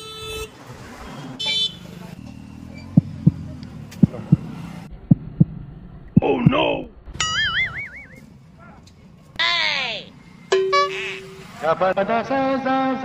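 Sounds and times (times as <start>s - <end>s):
vehicle horn toot: 0.0s - 0.6s, 1.2s - 1.8s, 10.6s - 11.5s.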